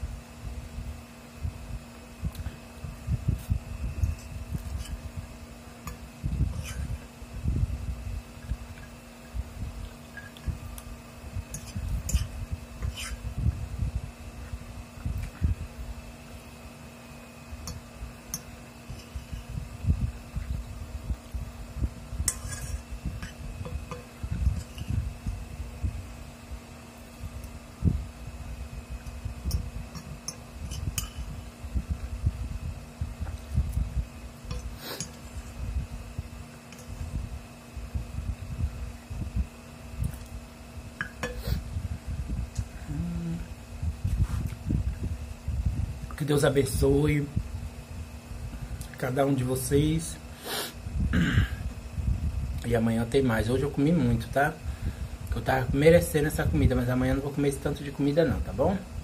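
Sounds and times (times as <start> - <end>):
faint steady hum: 0.0 - 59.0
fork scraping glass bowl: 4.1 - 5.0, 6.5 - 7.0, 11.5 - 13.3, 17.7 - 19.5, 22.3 - 25.0, 30.0 - 31.4.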